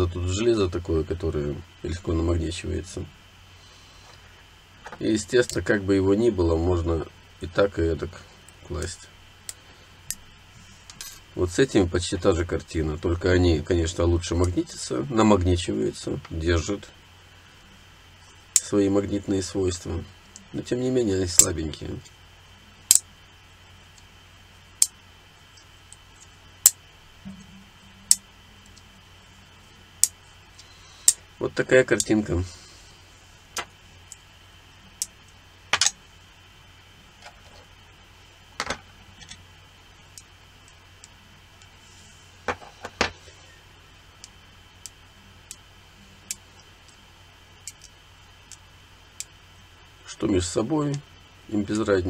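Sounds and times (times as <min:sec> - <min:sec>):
magnets and metal pieces clicking: 0:47.6 - 0:47.9.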